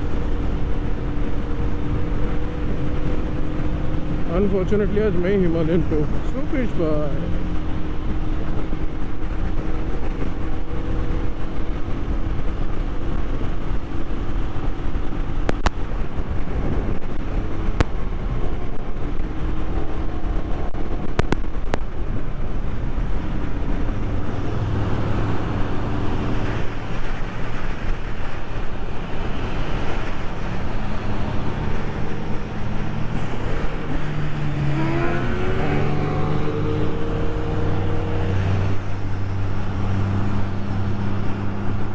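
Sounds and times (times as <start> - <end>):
road and wind rush: 0.0 - 41.9
engine revving up: 31.4 - 39.1.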